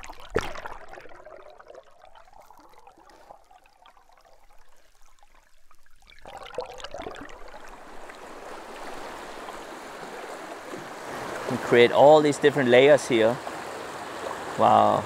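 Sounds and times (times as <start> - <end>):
ticking and bubbling: 0.0 - 10.7
underwater water rushing: 0.0 - 15.0.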